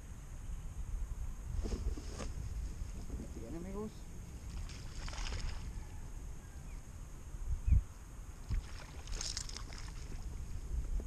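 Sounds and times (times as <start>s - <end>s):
wind on microphone: 0.0s - 11.0s
water against hull: 8.4s - 11.0s.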